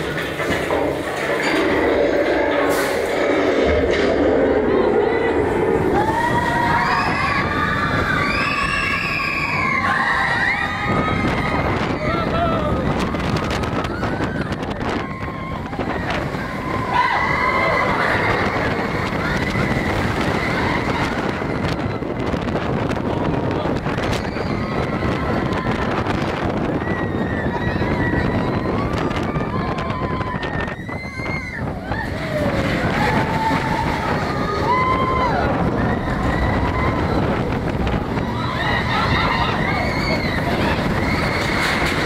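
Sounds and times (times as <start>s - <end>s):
roller coaster wheels rumbling: 0.0s - 42.0s
wind rushing over microphone: 0.0s - 42.0s
riders screaming: 26.8s - 42.0s.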